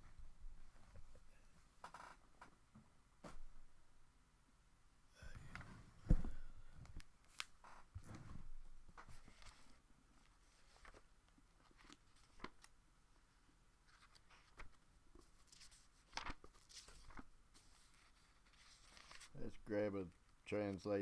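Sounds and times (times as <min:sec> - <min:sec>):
soft clicks of book handling: 0:05.4 - 0:08.2, 0:08.9 - 0:12.8, 0:13.9 - 0:19.3
book pages turning: 0:09.0 - 0:12.7, 0:13.9 - 0:19.4.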